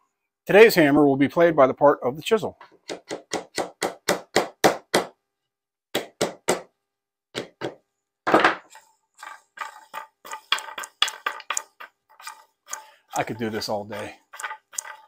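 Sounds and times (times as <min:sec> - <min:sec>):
chisel tapping wooden ring: 0:09.9 - 0:12.9.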